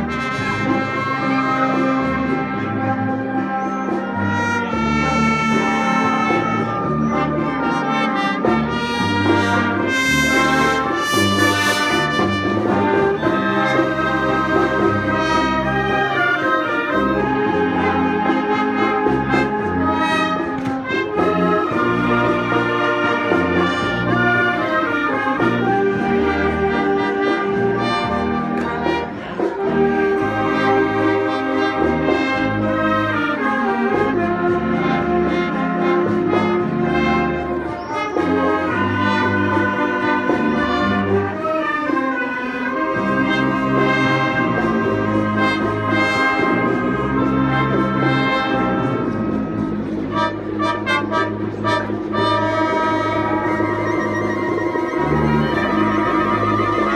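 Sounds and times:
concert wind band playing: 0.0s - 56.9s
low bass line: 43.6s - 56.9s.

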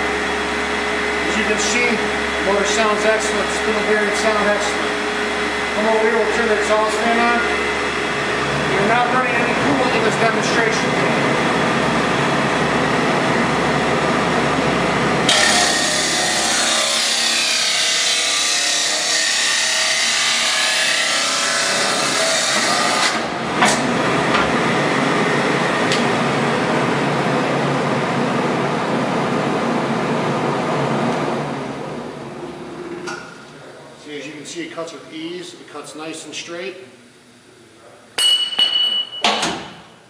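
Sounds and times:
chop saw running: 15.3s - 23.9s.

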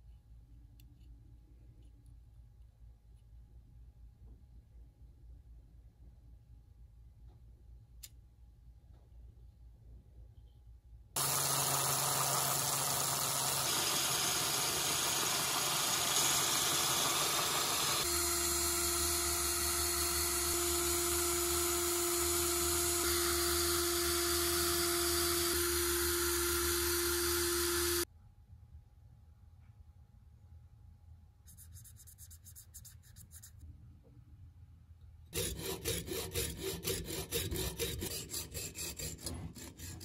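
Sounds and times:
cordless drill whining: 11.2s - 28.1s.

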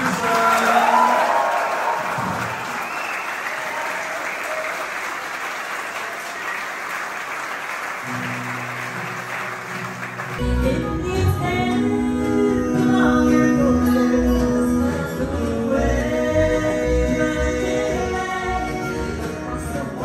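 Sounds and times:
audience applauding: 0.0s - 10.6s
bluegrass band playing: 8.1s - 20.0s
person singing: 10.4s - 20.0s.

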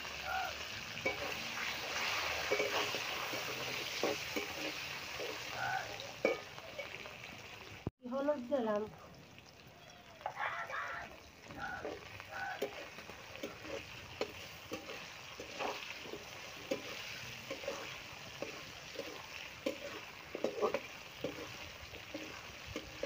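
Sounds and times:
potato wedges sizzling in oil: 0.0s - 23.0s
metal spatula scraping pan: 1.0s - 7.1s, 11.8s - 23.0s.

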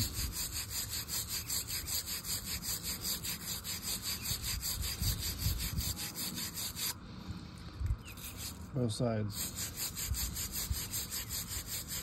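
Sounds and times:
wire brush scrubbing pipe fitting: 8.1s - 8.7s, 9.3s - 12.0s.

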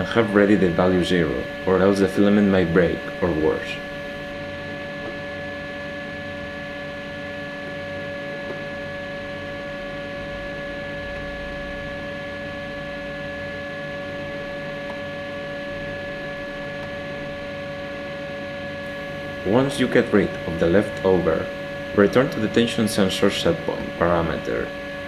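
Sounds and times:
motors whining: 0.0s - 5.7s
machine mechanical hum: 0.0s - 25.0s.

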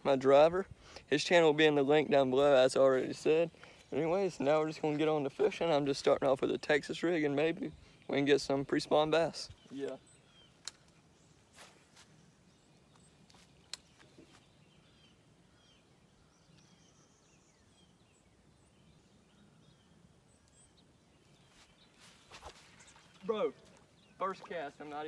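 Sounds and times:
soft sharp clicks: 10.6s - 11.0s.

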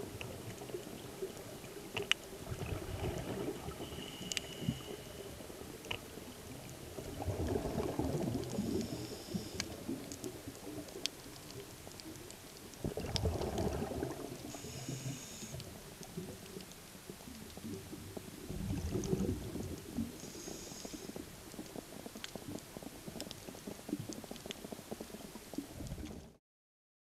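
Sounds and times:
bubbles gurgling underwater: 0.0s - 4.9s, 5.6s - 11.7s, 12.7s - 14.8s, 16.0s - 20.2s
regulator inhale hiss: 3.8s - 5.4s, 8.6s - 9.9s, 14.4s - 15.6s, 20.2s - 21.2s.

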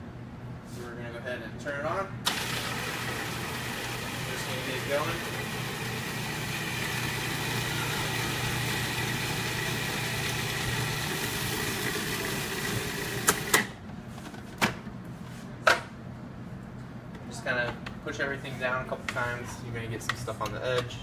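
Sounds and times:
food processor motor whining: 2.3s - 13.6s.

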